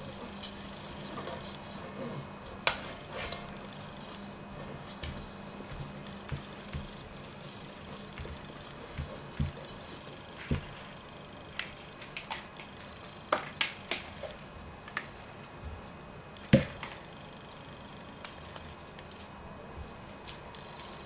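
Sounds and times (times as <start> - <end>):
mixing bowls knocking and clicking: 2.4 - 15.8.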